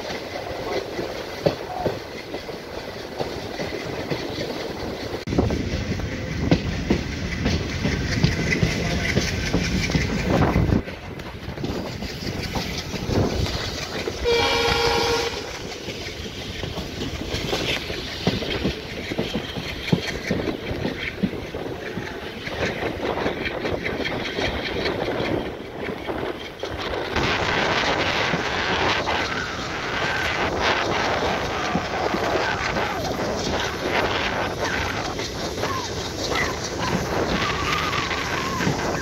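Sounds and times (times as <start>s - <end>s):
train wheels clattering on rails: 0.0s - 39.0s
train horn blast: 14.2s - 15.7s.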